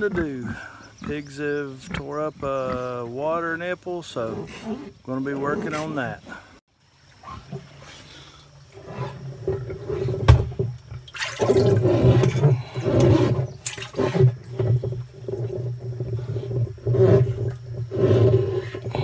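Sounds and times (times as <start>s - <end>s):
pigs grunting: 0.0s - 3.4s, 4.1s - 6.5s, 7.2s - 10.6s, 11.4s - 19.0s
water sloshing in plastic barrel: 7.0s - 19.0s.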